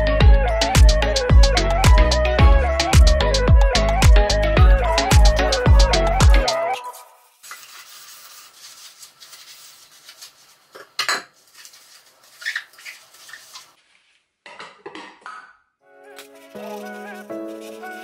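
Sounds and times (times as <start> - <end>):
sponge scrubbing metal pots: 7.4 - 13.8.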